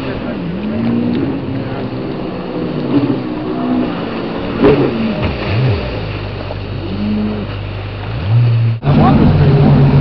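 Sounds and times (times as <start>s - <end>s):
jet ski engine revving: 0.0s - 10.0s.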